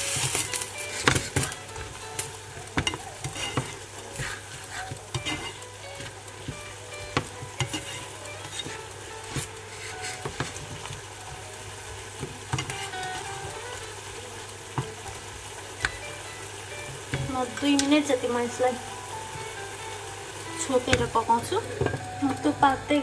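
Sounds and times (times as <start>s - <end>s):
spatula scraping frying pan: 0.0s - 15.2s
sauce sizzling: 0.0s - 23.0s.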